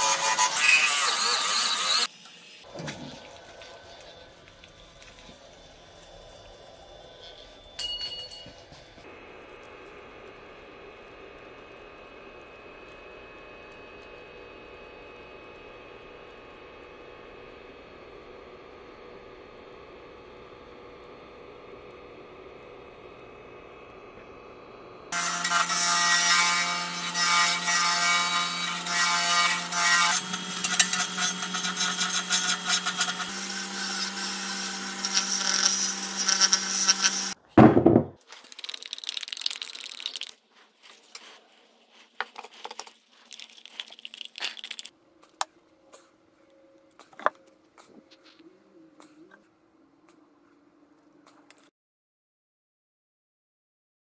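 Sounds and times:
lathe hum: 0:00.0 - 0:07.8, 0:09.0 - 0:37.4
gouge scraping spinning wood: 0:26.4 - 0:37.4
loud thump: 0:37.6 - 0:38.2.

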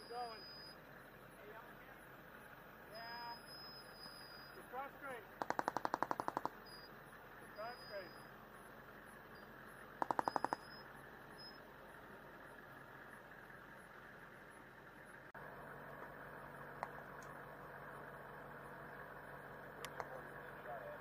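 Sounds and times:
automatic gunfire burst: 0:05.4 - 0:06.6, 0:10.0 - 0:10.6.

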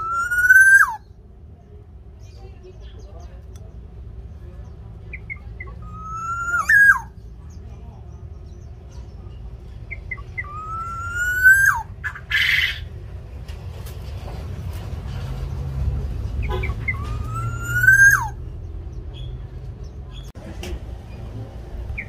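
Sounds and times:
bird whistled calls: 0:00.0 - 0:01.1, 0:05.1 - 0:07.2, 0:09.9 - 0:12.9, 0:16.4 - 0:18.4
low background rumble: 0:00.0 - 0:22.0.

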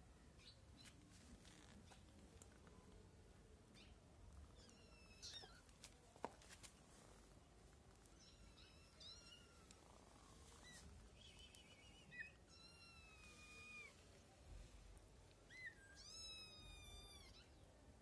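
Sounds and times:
kitten meowing: 0:15.5 - 0:17.6.

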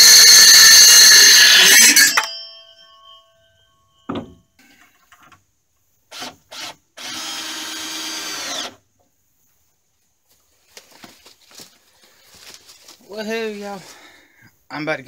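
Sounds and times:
cordless drill driving screw: 0:06.1 - 0:08.8.

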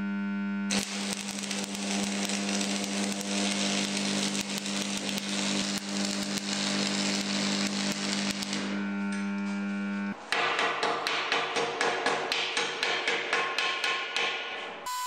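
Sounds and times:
welding arc crackling sizzle: 0:00.7 - 0:10.2.

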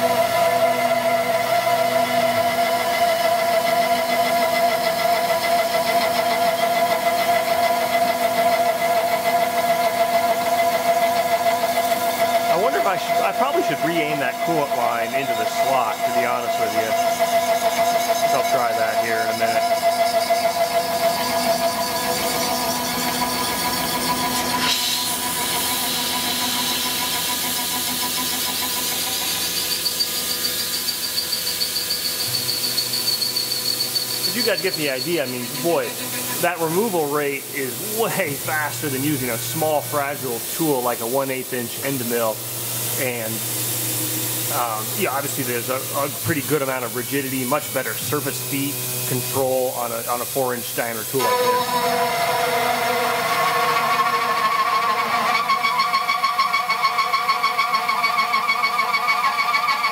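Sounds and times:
milling cutter whine: 0:00.0 - 0:59.9
coolant hiss: 0:08.0 - 0:57.8
cutting noise: 0:12.2 - 0:59.9.

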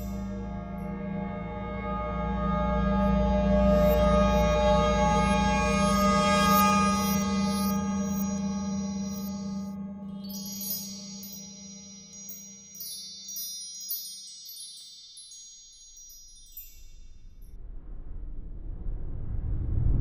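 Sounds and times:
shimmering wind chime tones: 0:00.0 - 0:01.8, 0:02.6 - 0:17.6
low sustained tone: 0:00.0 - 0:20.0
rising whoosh: 0:17.6 - 0:20.0.

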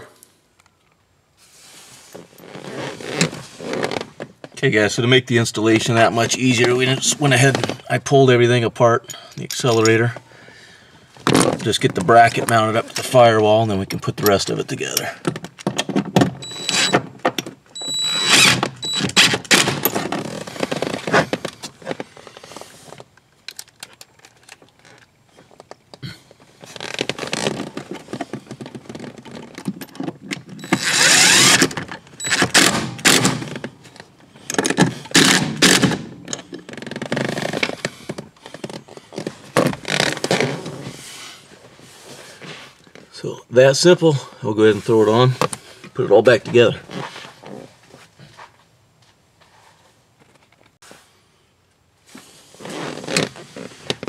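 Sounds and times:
cordless driver driving screws: 0:16.4 - 0:17.0, 0:17.8 - 0:19.6, 0:30.6 - 0:33.5.

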